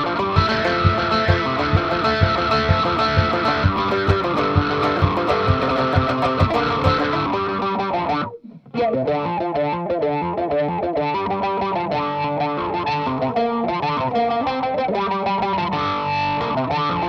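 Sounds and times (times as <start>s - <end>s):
banjo playing fast jig: 0.0s - 8.1s
low thump on the beat: 0.2s - 7.4s.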